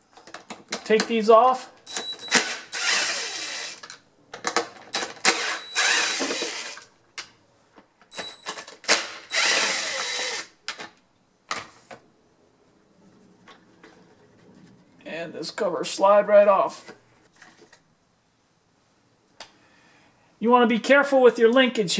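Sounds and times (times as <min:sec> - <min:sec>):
power screwdriver whirring: 0:01.9 - 0:03.9, 0:05.0 - 0:06.9, 0:08.9 - 0:10.5.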